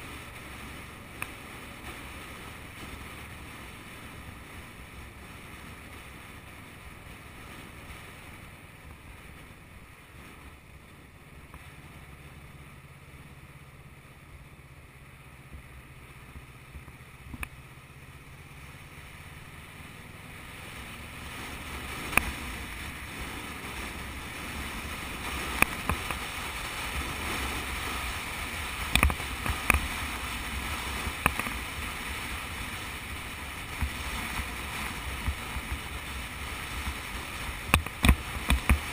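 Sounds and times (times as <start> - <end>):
motorcycle engine: 0.0 - 38.9
wind and road rush: 0.0 - 38.9.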